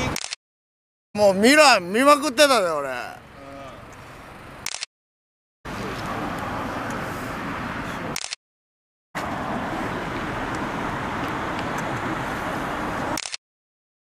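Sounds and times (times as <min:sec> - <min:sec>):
engines and road traffic hum: 0:00.0 - 0:00.4, 0:01.2 - 0:04.9, 0:05.6 - 0:08.4, 0:09.1 - 0:13.4.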